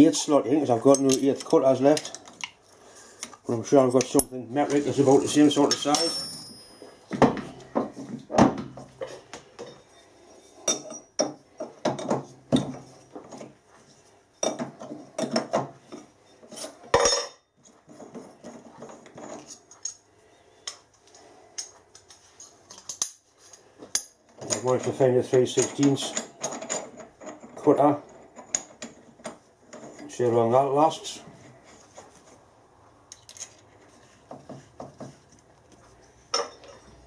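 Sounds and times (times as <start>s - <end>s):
metal tools clinking and clattering: 0.7s - 2.5s, 3.2s - 8.0s, 8.9s - 13.5s, 21.6s - 29.1s, 36.3s - 37.0s.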